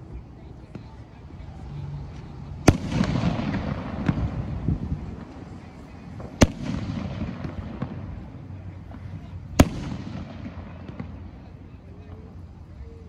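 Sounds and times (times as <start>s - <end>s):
fireworks cracks and bangs: 2.2s - 11.7s.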